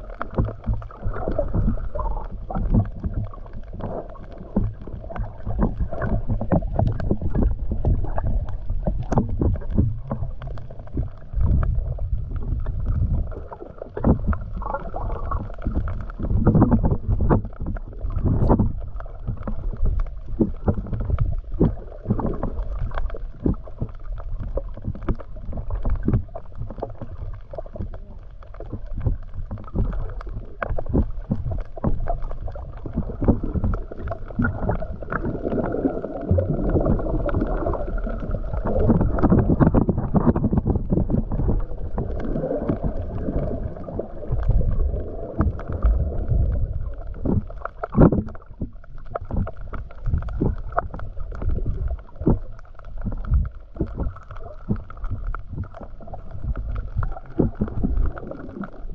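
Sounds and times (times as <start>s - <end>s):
water swishing underwater: 0.0s - 58.9s.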